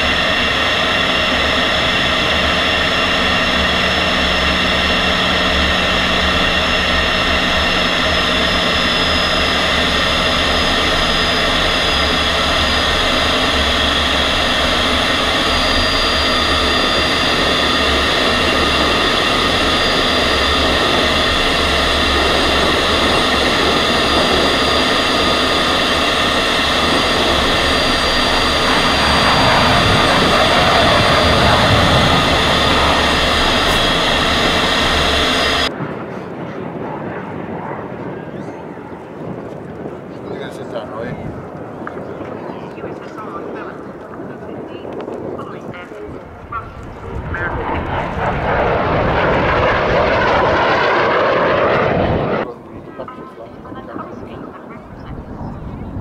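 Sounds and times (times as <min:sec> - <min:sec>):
jet engine rushing and whining: 0:00.0 - 0:56.0.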